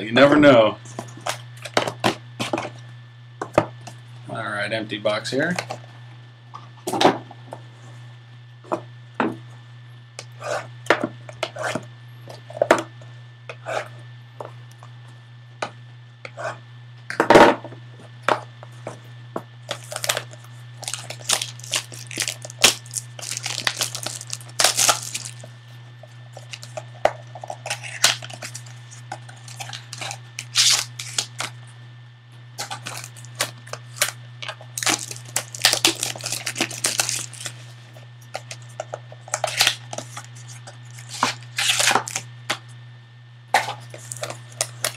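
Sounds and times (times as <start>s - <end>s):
low hum: 11.4s - 44.9s
foil tearing and crinkling: 19.7s - 25.5s, 26.4s - 26.9s, 27.5s - 31.6s, 32.6s - 42.3s, 43.6s - 44.9s.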